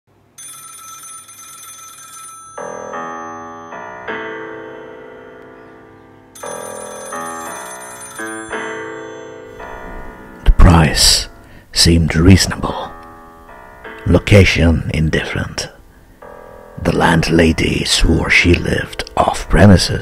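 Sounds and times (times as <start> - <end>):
telephone ringing: 0.3 - 3.3, 6.4 - 10.2
slow musical notes: 2.6 - 19.7.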